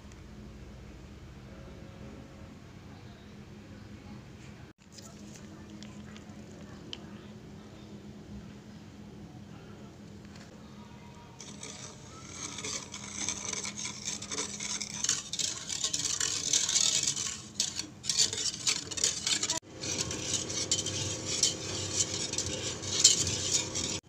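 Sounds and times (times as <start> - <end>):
wire whisk scraping metal pan: 11.4 - 24.0.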